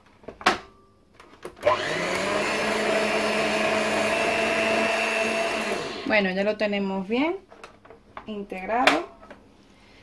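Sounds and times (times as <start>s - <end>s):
stand mixer motor whining: 1.6s - 6.1s.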